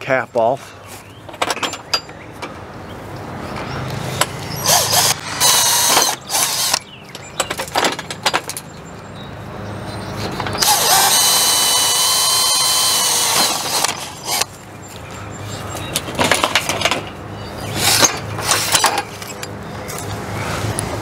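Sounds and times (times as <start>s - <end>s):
cordless drill drilling rivets: 4.6s - 6.8s, 10.6s - 14.5s.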